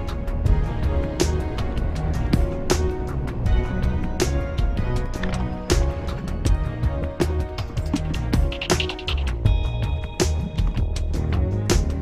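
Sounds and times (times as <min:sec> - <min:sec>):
instrumental background music: 0:00.0 - 0:12.0
sharp percussive hits: 0:07.6 - 0:11.1.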